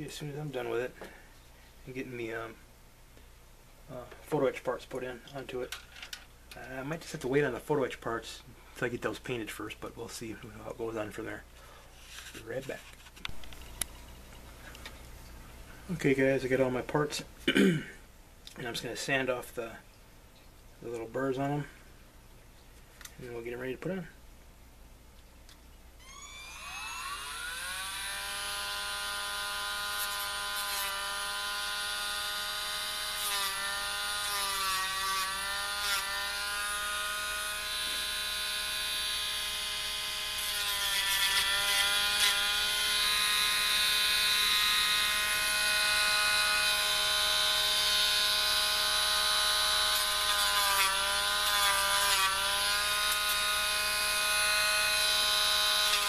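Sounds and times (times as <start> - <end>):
rotary tool whining: 26.0 - 56.0.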